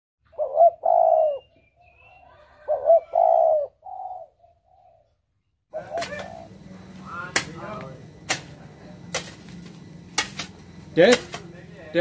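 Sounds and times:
small bird chirping: 0:00.3 - 0:06.7
dove cooing: 0:00.3 - 0:07.1.

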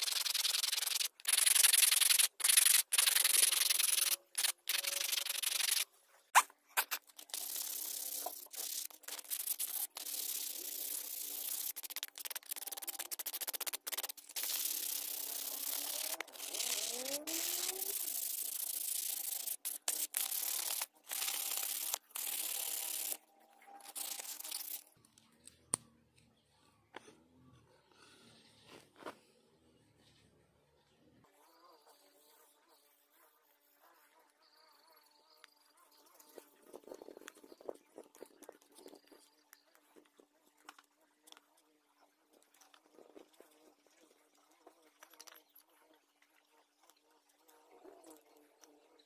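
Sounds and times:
sandpaper rubbing on wood: 0:00.0 - 0:05.8, 0:06.8 - 0:23.2.

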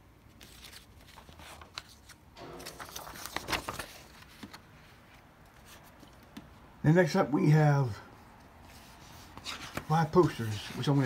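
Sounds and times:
paper and cardboard rustling: 0:00.3 - 0:06.5, 0:08.6 - 0:11.0.

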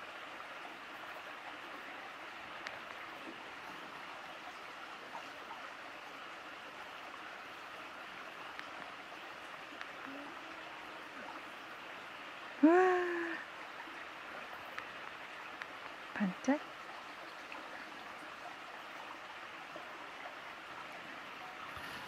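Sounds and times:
person exclaiming: 0:12.6 - 0:13.4.

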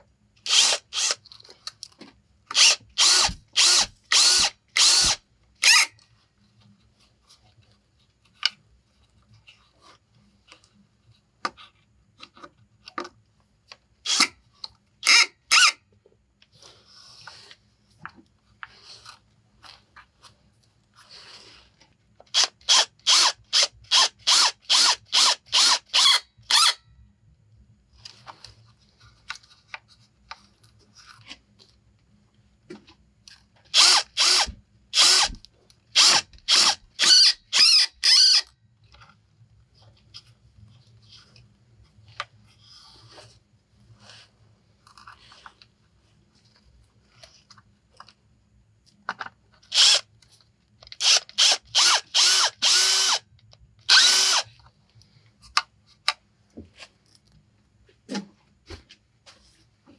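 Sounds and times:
cordless drill driving screws: 0:00.5 - 0:01.2, 0:02.5 - 0:05.9, 0:14.1 - 0:14.3, 0:22.4 - 0:26.8, 0:33.7 - 0:35.4, 0:36.0 - 0:38.5, 0:49.7 - 0:50.0, 0:51.0 - 0:53.2, 0:53.9 - 0:54.5.

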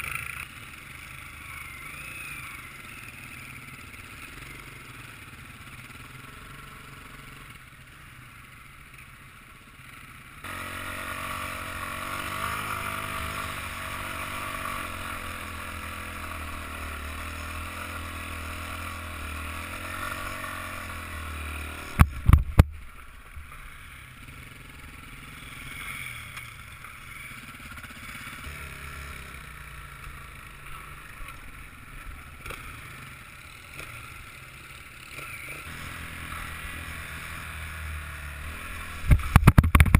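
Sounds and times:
motorbike engine revving: 0:10.4 - 0:39.9.

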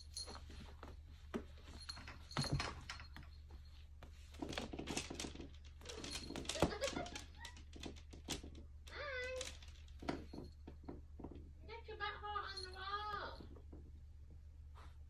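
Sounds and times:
cat scuffing and scratching: 0:00.0 - 0:11.4.

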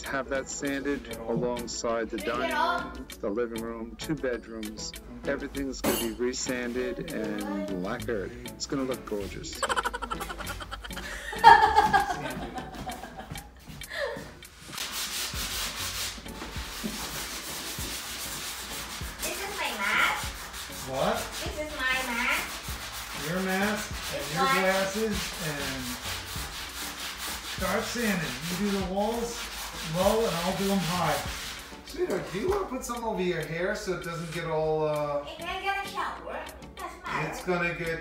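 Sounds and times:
sandpaper rubbing on wall: 0:09.6 - 0:13.2, 0:14.5 - 0:32.6.

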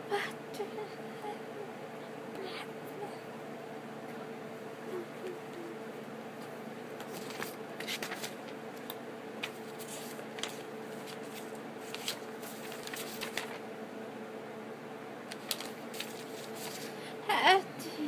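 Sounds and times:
background hum: 0:00.0 - 0:18.0
paper rustling and crackling: 0:06.4 - 0:13.7, 0:15.3 - 0:17.0.

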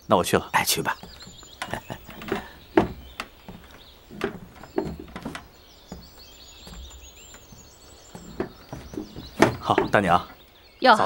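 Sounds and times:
birds chirping: 0:00.0 - 0:11.0
knocks and thumps: 0:01.0 - 0:10.4.

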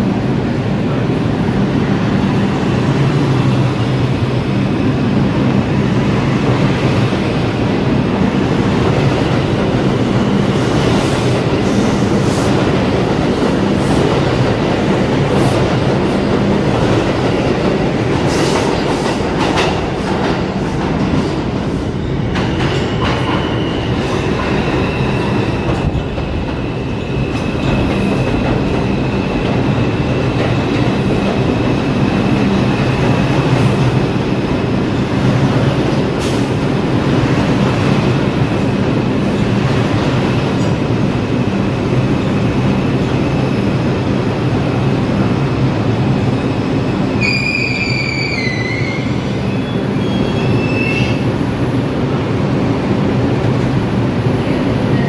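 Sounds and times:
train wheels rumbling on rail: 0:00.0 - 0:55.0
high steady wheel squeal: 0:47.1 - 0:51.2.

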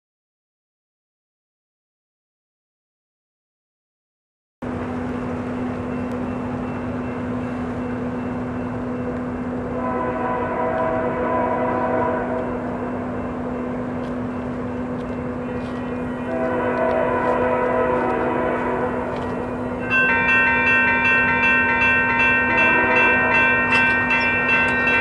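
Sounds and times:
diesel locomotive rumble: 0:04.6 - 0:25.0
train air horn: 0:09.7 - 0:12.7, 0:16.1 - 0:19.6, 0:22.5 - 0:23.6.

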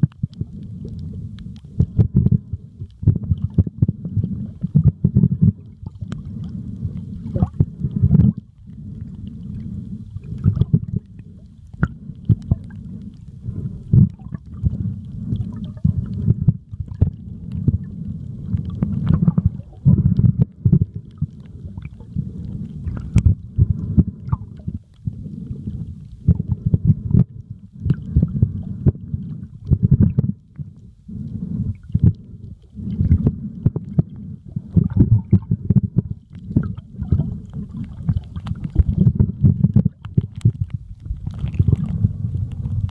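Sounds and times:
underwater rumble and sloshing: 0:00.0 - 0:42.9.

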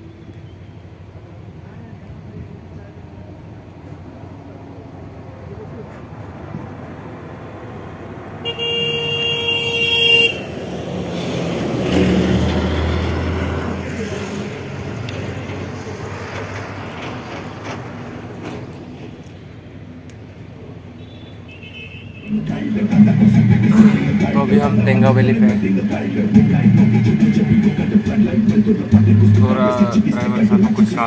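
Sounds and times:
engine and road noise: 0:00.0 - 0:31.0
vehicle horn: 0:08.4 - 0:10.6, 0:21.0 - 0:22.8.

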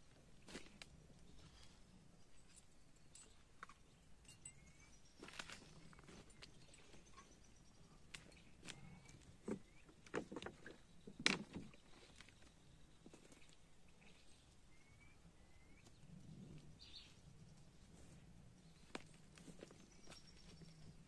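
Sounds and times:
faint bird chirps: 0:01.3 - 0:10.0, 0:10.6 - 0:21.0
camping gear rustling and knocking: 0:05.2 - 0:13.6, 0:17.9 - 0:21.0.

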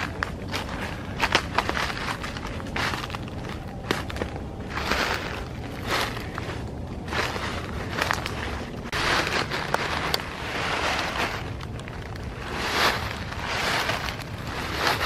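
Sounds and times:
footsteps crunching through dry leaves: 0:00.0 - 0:15.0
wind rumble on microphone: 0:00.0 - 0:15.0.

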